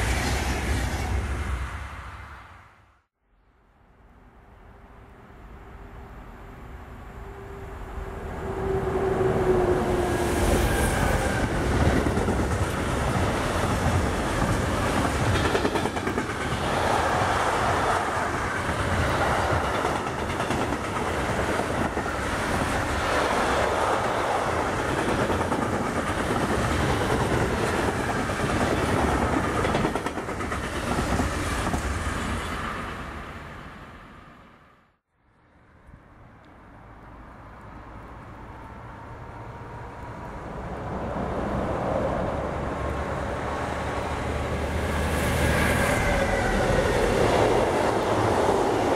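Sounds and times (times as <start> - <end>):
locomotive humming: 5.3 - 33.8
train wheels clattering over rails: 11.2 - 23.0, 23.9 - 32.0.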